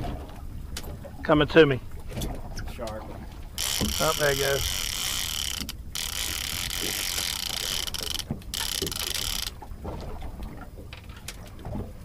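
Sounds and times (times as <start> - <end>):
fishing reel clicker ratcheting: 3.6 - 9.6.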